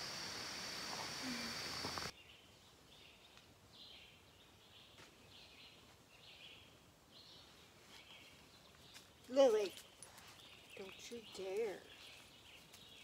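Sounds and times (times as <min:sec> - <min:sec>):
steady hiss with high whine: 0:00.0 - 0:02.1.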